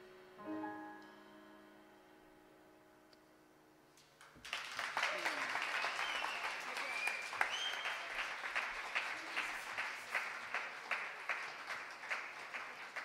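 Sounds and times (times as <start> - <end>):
audience applauding: 4.2 - 13.0.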